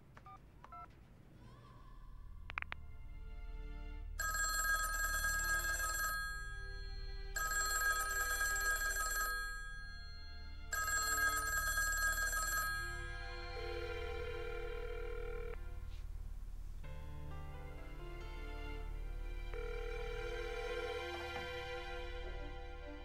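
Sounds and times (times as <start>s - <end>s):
telephone bell ringing: 4.2s - 15.6s, 19.6s - 21.3s.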